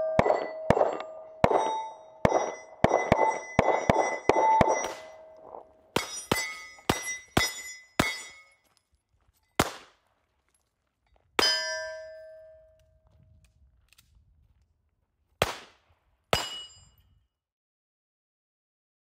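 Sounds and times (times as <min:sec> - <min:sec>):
pistol shots: 0:00.0 - 0:08.4, 0:09.6 - 0:10.0, 0:15.4 - 0:15.8
steel plate ringing clang: 0:00.0 - 0:08.6, 0:11.4 - 0:12.6, 0:16.4 - 0:17.0.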